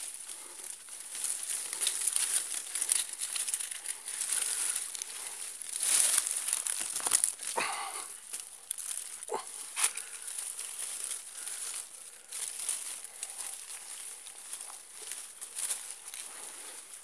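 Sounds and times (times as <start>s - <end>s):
footsteps crunching through dry leaves: 0.0s - 17.0s.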